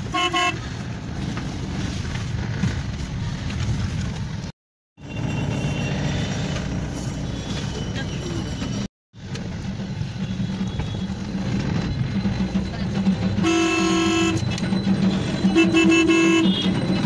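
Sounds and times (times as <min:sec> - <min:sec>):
road traffic noise: 0:00.0 - 0:17.0
vehicle horn honks: 0:00.1 - 0:00.6, 0:13.4 - 0:14.5, 0:15.5 - 0:16.8.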